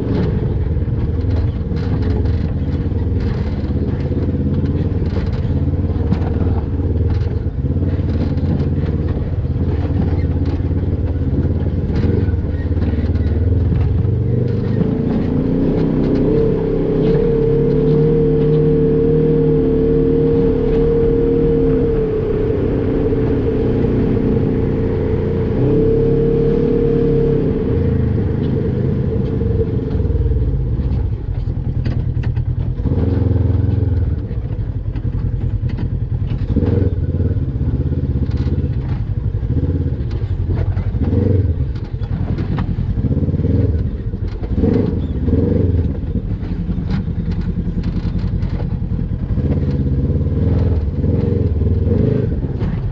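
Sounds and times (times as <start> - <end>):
knocks and clatter: 0.0 - 18.7, 29.2 - 37.0, 38.2 - 52.9
off-road vehicle engine: 0.0 - 52.9.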